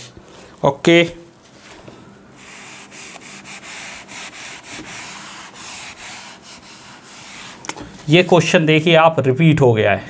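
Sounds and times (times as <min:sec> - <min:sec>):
duster rubbing on whiteboard: 0:02.4 - 0:08.4.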